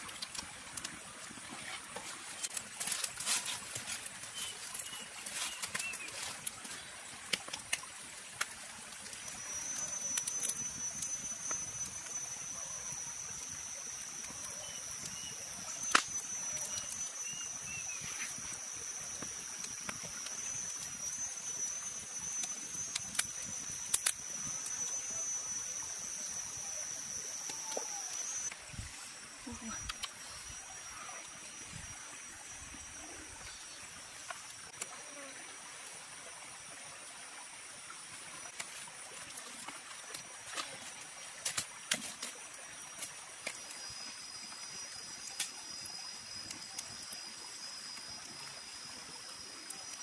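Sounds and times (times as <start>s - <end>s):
wood fire crackling and popping: 0.0s - 28.6s, 38.5s - 47.2s
high-pitched insect drone: 9.1s - 50.0s.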